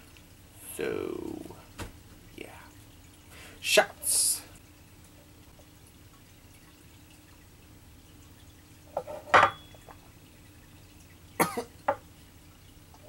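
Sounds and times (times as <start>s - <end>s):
glasses clinking on wooden table: 9.0s - 10.0s.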